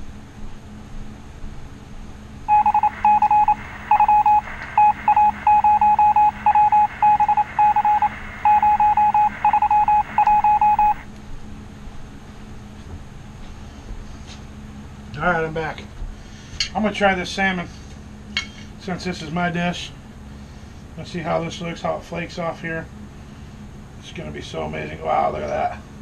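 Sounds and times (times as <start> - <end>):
rapid electronic beeps: 2.5 - 11.0.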